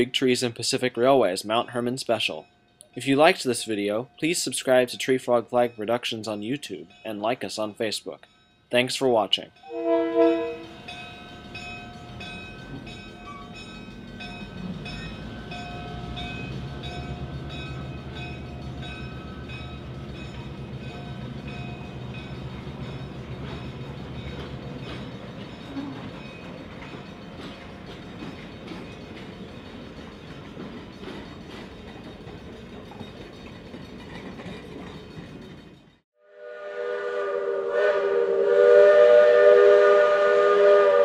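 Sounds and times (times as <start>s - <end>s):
train wheels clicking over rail joints: 10.6s - 36.0s.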